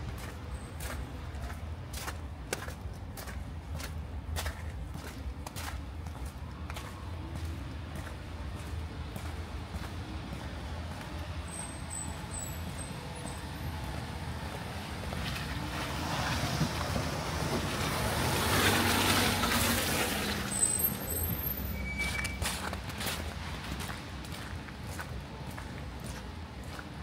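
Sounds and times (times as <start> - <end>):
car driving over wet cobblestones: 13.0 - 27.0.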